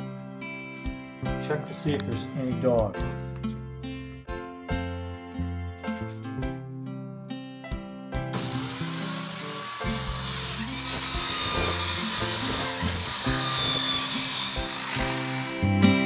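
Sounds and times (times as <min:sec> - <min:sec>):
acoustic guitar music: 0:00.0 - 0:16.0
power saw cutting plywood: 0:08.3 - 0:15.8.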